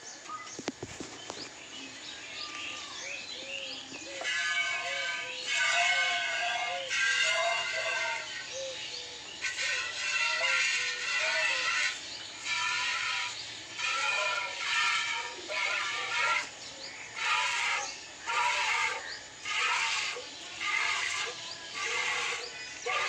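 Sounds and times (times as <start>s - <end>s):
milk spurting into steel bucket: 4.2s - 8.4s, 9.4s - 23.0s.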